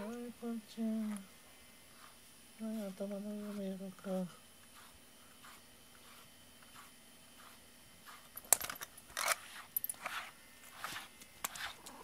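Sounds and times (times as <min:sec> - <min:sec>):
brush scratching through fur: 0:01.9 - 0:08.4, 0:09.4 - 0:11.8.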